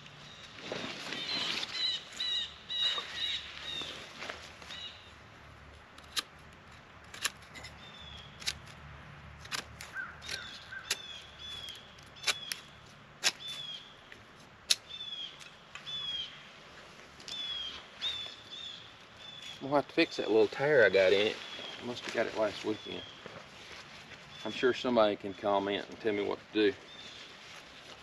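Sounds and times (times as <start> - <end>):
bird chirping: 7.6 - 8.5, 9.9 - 14.1, 14.8 - 16.5, 17.3 - 19.7.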